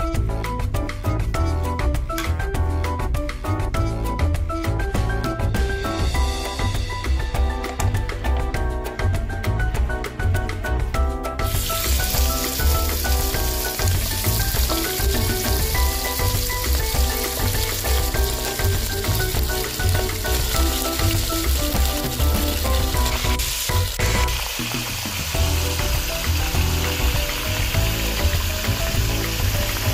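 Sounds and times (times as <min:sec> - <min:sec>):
beef sizzling in hot oil: 0:11.4 - 0:29.9.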